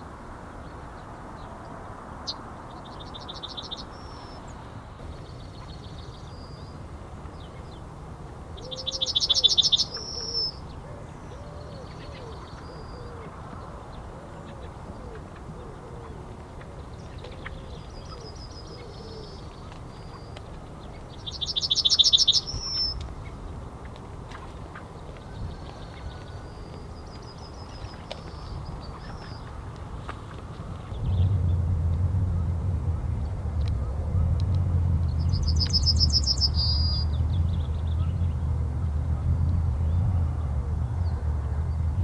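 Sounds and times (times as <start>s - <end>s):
yellowhammer singing: 2.2s - 23.9s, 35.0s - 38.6s
low rumble: 30.6s - 42.0s.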